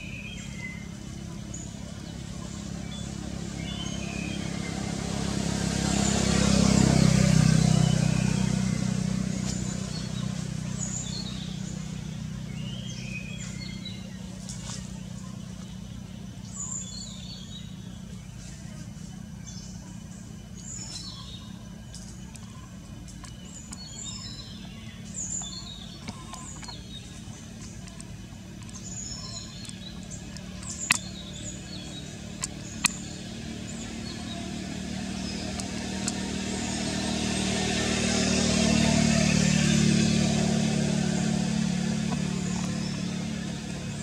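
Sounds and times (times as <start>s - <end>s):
low engine hum: 0.0s - 44.0s
small birds chirping: 0.0s - 44.0s
vehicle approaching: 0.0s - 44.0s.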